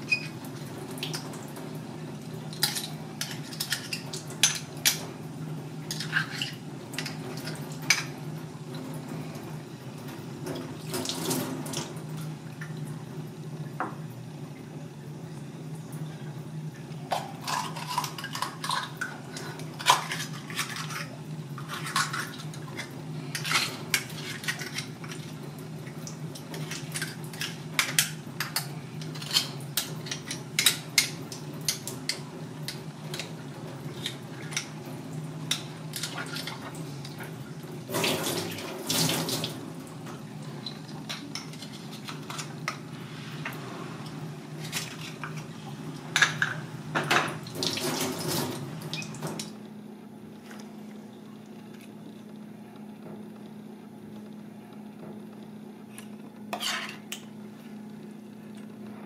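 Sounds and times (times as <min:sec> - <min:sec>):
tap water running into sink: 0:10.4 - 0:12.9, 0:35.4 - 0:41.6, 0:46.2 - 0:49.5.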